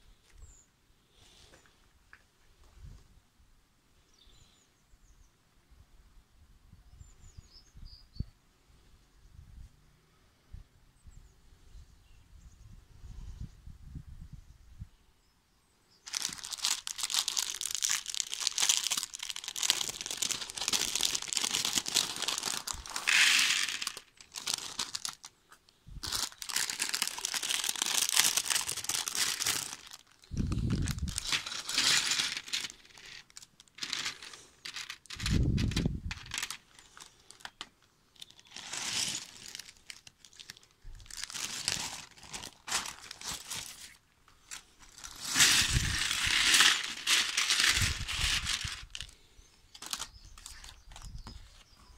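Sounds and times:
plastic pieces into tray: 0:16.1 - 0:25.2, 0:31.2 - 0:36.6, 0:45.2 - 0:48.9
plastic bags crinkling: 0:16.1 - 0:49.1, 0:49.7 - 0:51.3.

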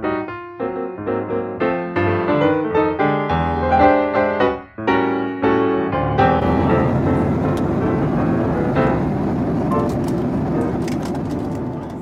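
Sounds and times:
solo piano melody: 0:00.0 - 0:12.0
steady rushing noise: 0:06.4 - 0:12.0.

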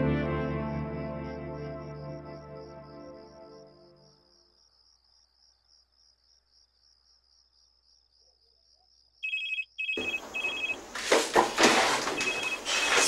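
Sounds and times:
crickets chirring: 0:03.8 - 0:13.0
phone ringtone beeps: 0:09.2 - 0:10.8, 0:12.2 - 0:13.0.

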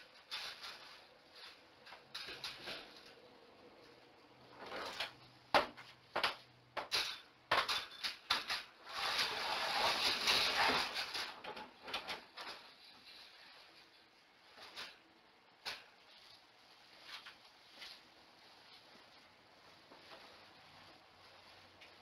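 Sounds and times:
rustling or scraping: 0:00.0 - 0:06.0, 0:06.9 - 0:22.0
sharp knocks and clatters: 0:04.7 - 0:08.8.

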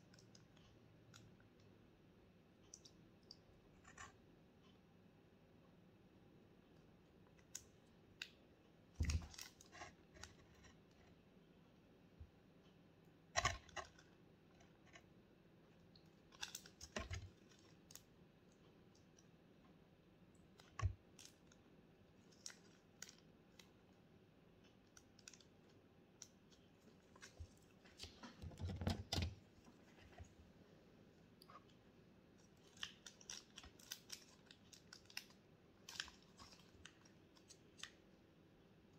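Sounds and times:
plastic crinkling: 0:32.4 - 0:38.0.

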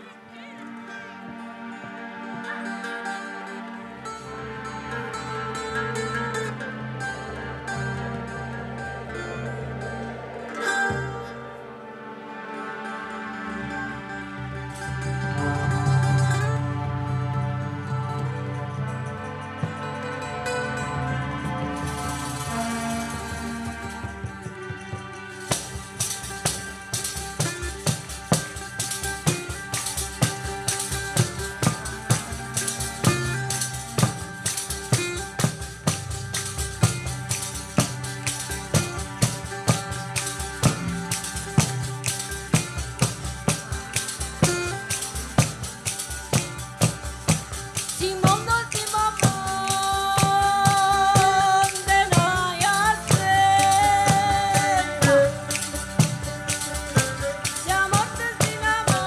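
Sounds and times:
strummed mandolin: 0:00.0 - 0:59.0
frame drum beating: 0:22.0 - 0:59.0
person singing: 0:47.9 - 0:56.4, 0:57.0 - 0:59.0.

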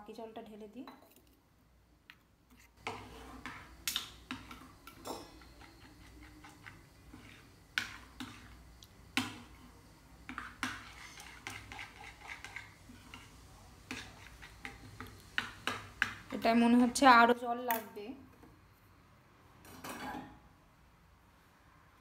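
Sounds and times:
metal spoon scraping steel bowl: 0:04.9 - 0:08.6, 0:10.3 - 0:15.0.

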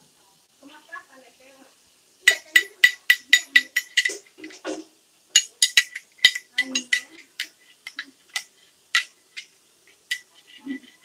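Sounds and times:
spoon clinking against glass dish: 0:02.2 - 0:04.8, 0:05.4 - 0:11.0.

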